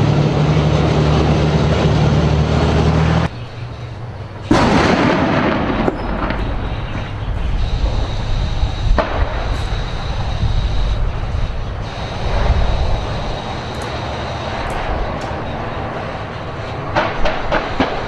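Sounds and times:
tank engine and tracks drone: 0.0 - 18.0
sharp gunshot crack: 4.5 - 7.0, 9.0 - 9.7, 17.0 - 18.0.

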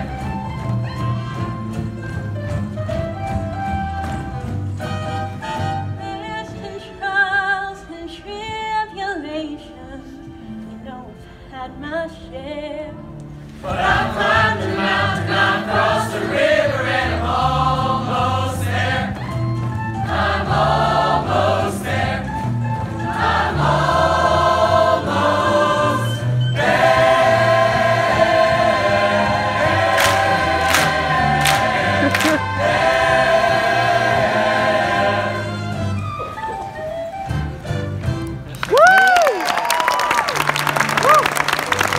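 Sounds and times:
choir singing: 13.6 - 19.2, 20.0 - 35.9.

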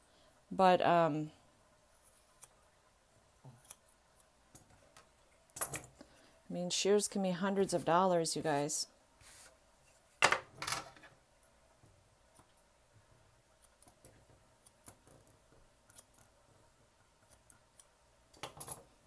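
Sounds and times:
brush swishing through fur: 9.2 - 9.6.

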